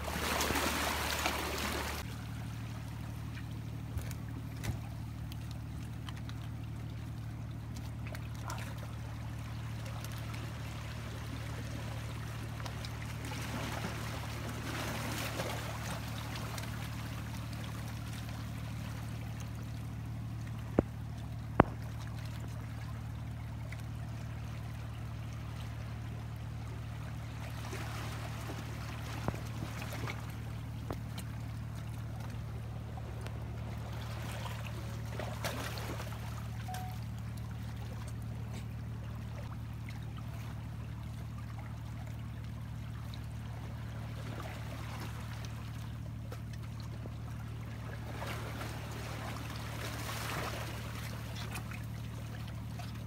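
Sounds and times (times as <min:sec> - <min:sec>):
steady low hum: 0:00.0 - 0:53.0
water trickling among rocks: 0:00.1 - 0:35.1.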